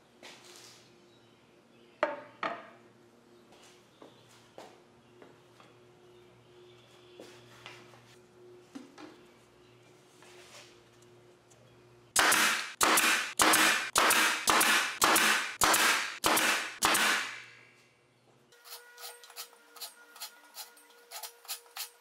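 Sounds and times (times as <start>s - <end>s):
pneumatic nailer firing: 12.2s - 17.5s.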